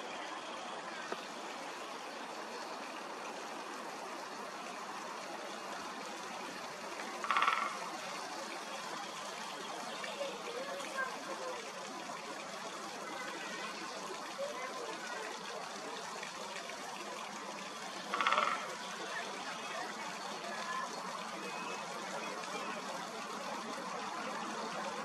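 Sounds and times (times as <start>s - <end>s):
woodpecker drumming: 7.2s - 8.0s, 17.8s - 19.0s.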